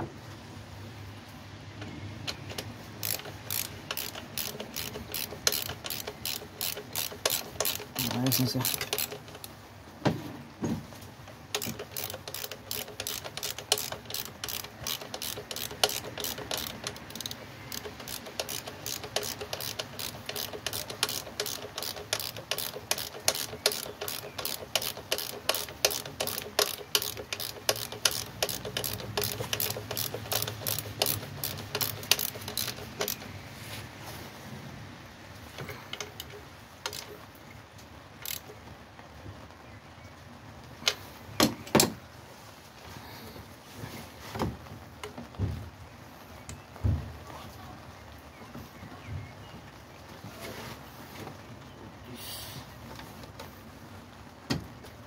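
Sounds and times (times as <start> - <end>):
ratchet wrench clicking: 2.3 - 9.5, 11.5 - 33.4, 35.9 - 37.2, 38.2 - 38.4.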